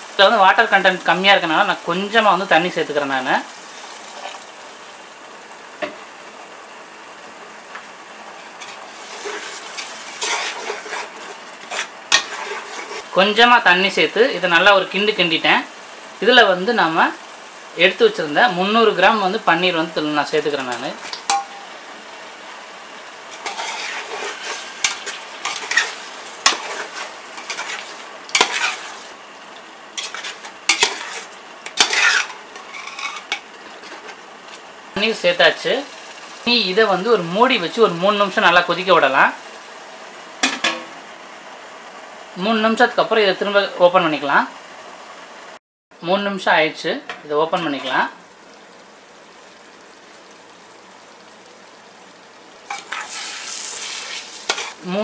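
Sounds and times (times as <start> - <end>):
gravy sizzling in a metal pot: 0.0 - 55.0
metal ladle scraping a pot: 23.3 - 28.9, 30.0 - 34.2.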